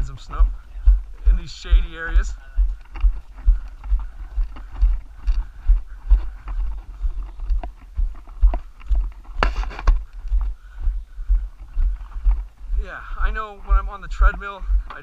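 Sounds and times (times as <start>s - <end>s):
footsteps on gravel road: 0.0s - 15.0s.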